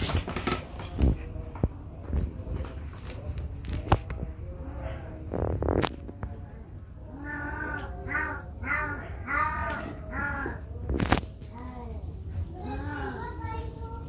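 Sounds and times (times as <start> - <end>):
animal calling: 7.1 - 10.8.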